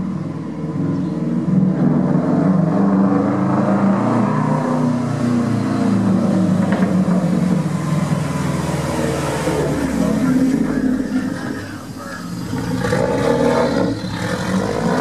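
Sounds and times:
car engine running: 0:05.6 - 0:15.0.

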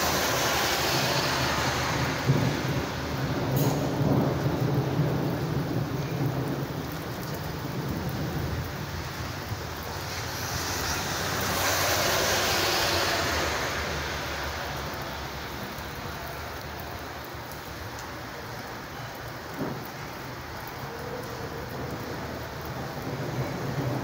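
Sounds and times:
heavy rain falling: 0:00.0 - 0:24.0
low rumble of thunder: 0:01.4 - 0:11.6, 0:19.1 - 0:24.0.

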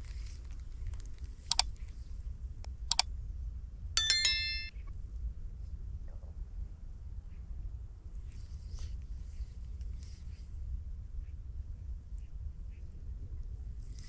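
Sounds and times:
bright bell ding: 0:04.0 - 0:04.7.

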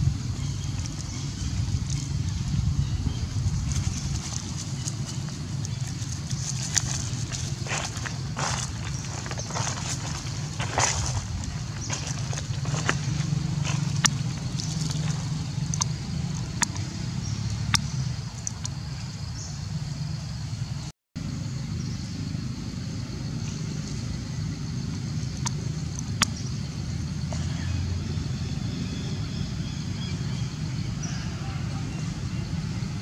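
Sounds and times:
low motor rumble: 0:00.0 - 0:33.0
sharp clicks and ticks: 0:13.9 - 0:16.9.

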